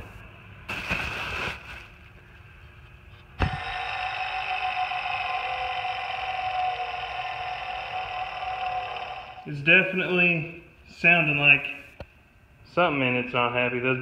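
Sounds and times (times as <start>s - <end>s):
pulley whirring: 3.4s - 9.5s.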